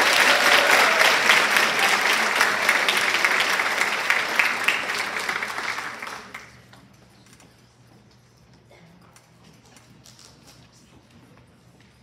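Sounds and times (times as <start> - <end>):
large audience applauding: 0.0 - 6.6.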